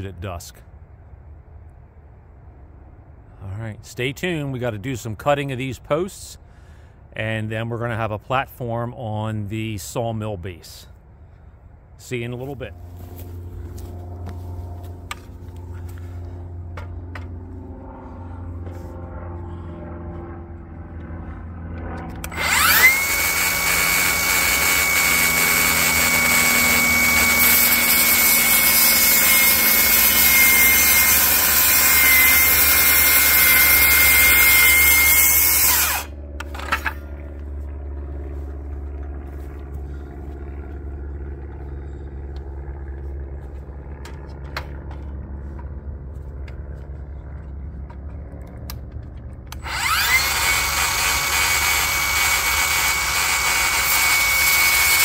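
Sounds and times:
circular saw motor whine: 12.7 - 44.5, 49.5 - 55.0
saw blade rasping through wood: 22.2 - 36.1, 49.6 - 55.0.

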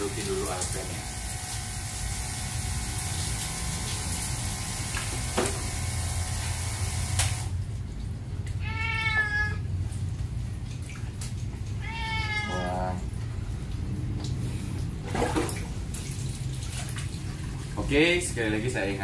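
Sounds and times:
water running into metal sink: 0.0 - 7.1
cat meowing: 8.6 - 9.7, 11.8 - 13.0.

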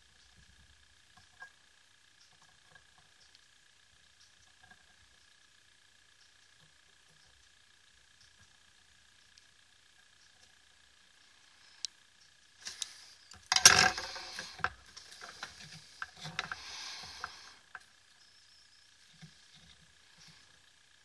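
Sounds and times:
soldering tools clattering: 12.6 - 17.9.

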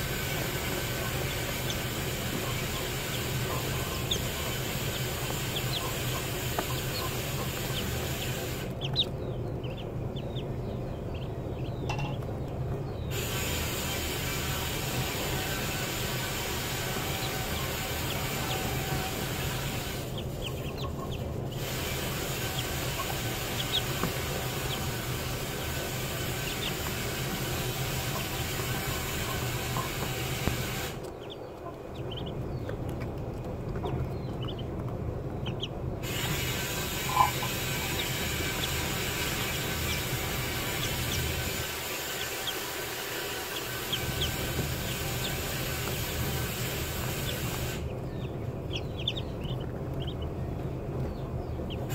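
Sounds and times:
steady hiss: 0.0 - 8.8, 13.1 - 31.1, 36.0 - 48.0
ducklings peeping: 0.0 - 51.9
low hum: 0.0 - 51.9.

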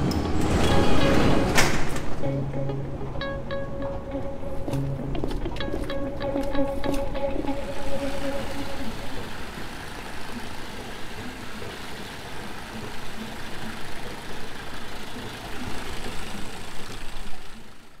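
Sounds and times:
mechanical rumble: 0.0 - 3.0, 7.2 - 18.0
hiss: 7.6 - 18.0.

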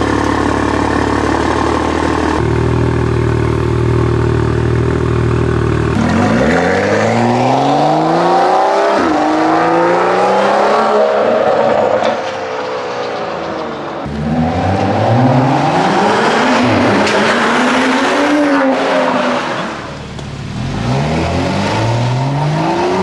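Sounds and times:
car engine idling: 0.0 - 6.2, 19.7 - 20.8
car accelerating hard: 5.9 - 12.8, 14.0 - 23.0.

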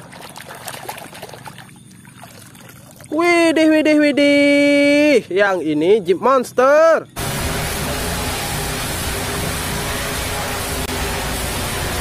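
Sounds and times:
truck engine running hard: 7.2 - 12.0.

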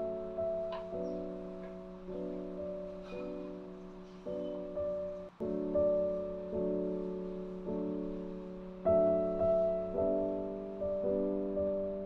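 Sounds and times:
sustained keyboard chords: 0.0 - 12.0.

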